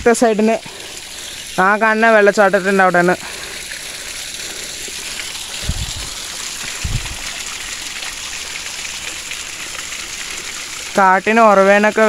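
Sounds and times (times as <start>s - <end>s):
small waterfall rushing: 0.0s - 12.0s
low thumps: 5.6s - 7.2s.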